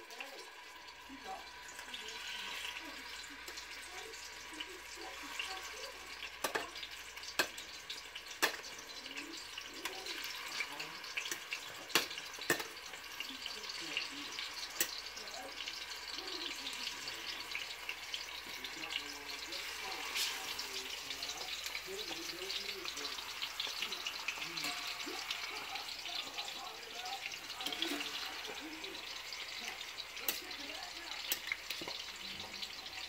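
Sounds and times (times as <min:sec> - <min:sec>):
chicken sizzling in hot oil: 0:00.0 - 0:33.0
sharp pops of frying oil: 0:06.4 - 0:07.7, 0:08.3 - 0:08.7, 0:11.2 - 0:12.8.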